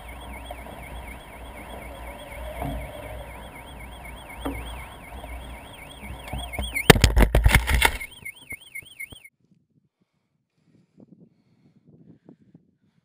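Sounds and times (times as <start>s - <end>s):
warbling electronic siren: 0.0s - 9.3s.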